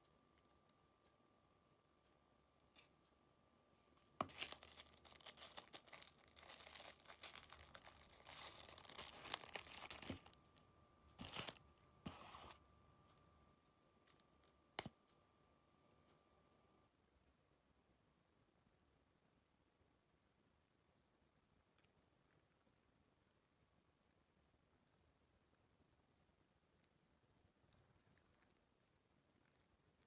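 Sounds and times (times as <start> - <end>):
paper wrapper crinkling and tearing: 4.2 - 10.4, 11.2 - 11.6.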